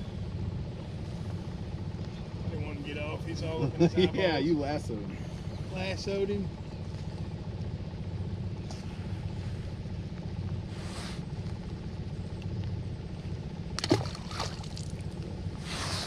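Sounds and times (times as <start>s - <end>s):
steady low rumble: 0.0s - 16.0s
fish splashing into water: 13.7s - 15.2s.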